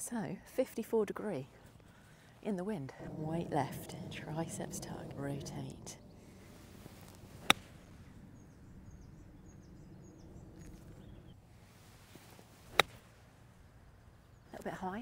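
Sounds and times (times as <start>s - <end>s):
wind: 0.0s - 15.0s
faint bird chirps: 5.9s - 11.4s
golf club striking ball: 5.9s - 11.4s, 12.7s - 13.0s.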